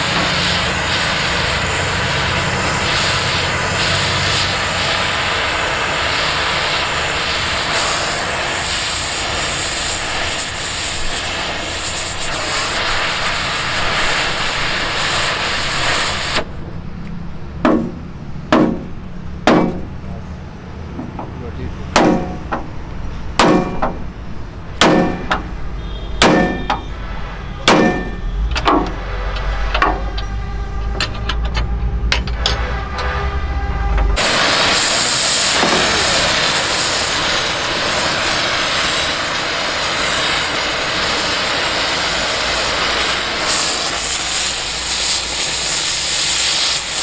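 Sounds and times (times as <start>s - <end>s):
gas cutting torch hissing: 0.0s - 16.5s, 34.2s - 47.0s
hammer clanging on metal: 26.2s - 26.9s, 27.7s - 29.0s.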